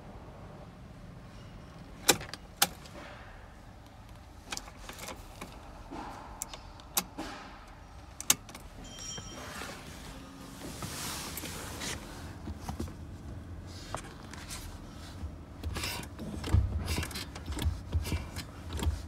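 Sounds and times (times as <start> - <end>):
ignition key clicks: 6.4 - 8.7.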